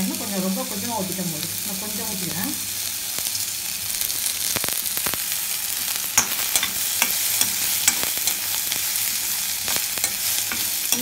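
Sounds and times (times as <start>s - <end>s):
vegetables sizzling in oil: 0.0s - 11.0s
spoon scraping and clicking on pan: 6.2s - 8.8s, 9.6s - 11.0s.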